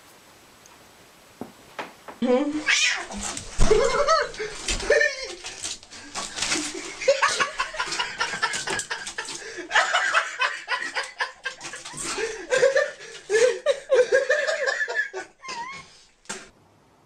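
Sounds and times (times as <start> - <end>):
snickering laughter: 3.6 - 5.5, 6.6 - 15.9.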